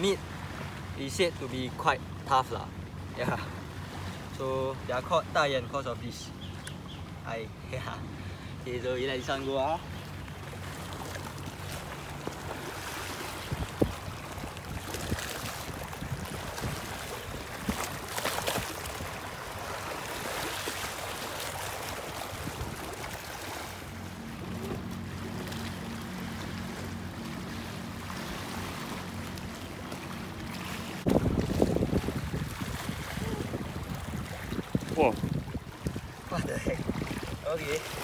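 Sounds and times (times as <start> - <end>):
motorboat engine hum: 0.0 - 38.0
waves lapping against rocks: 9.3 - 38.0.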